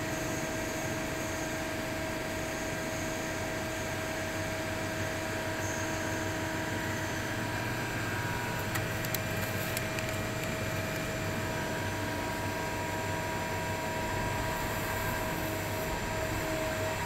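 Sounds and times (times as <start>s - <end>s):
machinery humming: 5.1s - 17.0s.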